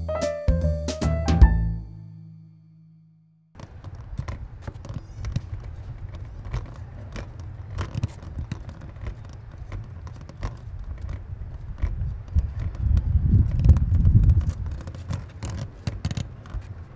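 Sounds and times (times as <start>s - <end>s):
street traffic rumble: 3.6s - 16.9s
wheelchair clicking and rattling: 3.6s - 16.9s.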